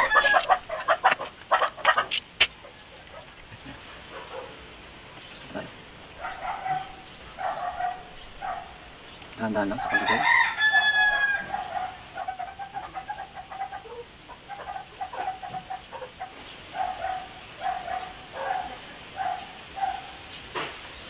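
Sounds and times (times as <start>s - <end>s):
distant dog barking: 0.0s - 4.7s, 6.1s - 9.0s, 11.0s - 20.4s.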